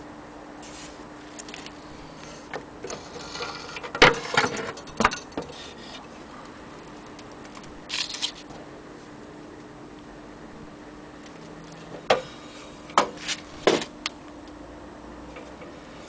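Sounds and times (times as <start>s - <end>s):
faint steady hum: 0.0s - 16.0s
clicks and knocks of sheet metal: 2.8s - 5.6s.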